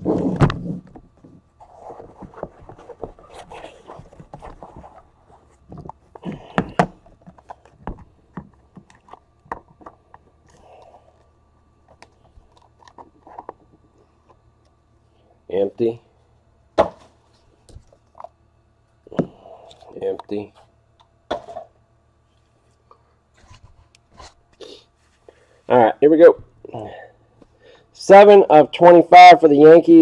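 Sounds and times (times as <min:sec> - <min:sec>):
scrapes and rustles: 0:00.0 - 0:06.2.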